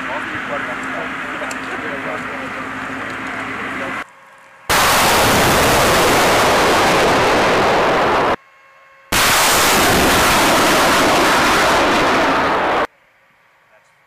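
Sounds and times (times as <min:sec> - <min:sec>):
rocket launch roar: 0:04.7 - 0:08.4, 0:09.1 - 0:12.9.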